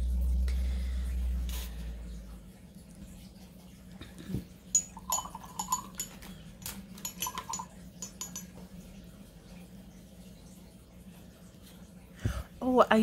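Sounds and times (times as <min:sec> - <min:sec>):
faint steady hum: 0:00.0 - 0:13.0
paintbrush tapping a cup: 0:04.8 - 0:06.4, 0:07.0 - 0:08.6.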